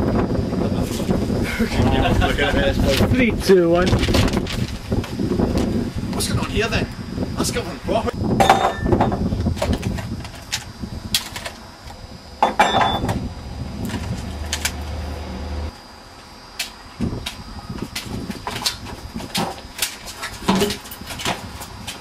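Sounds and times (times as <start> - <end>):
knocks and thumps: 8.4 - 10.4, 12.4 - 14.8, 17.8 - 21.6
low rumble: 11.9 - 15.7.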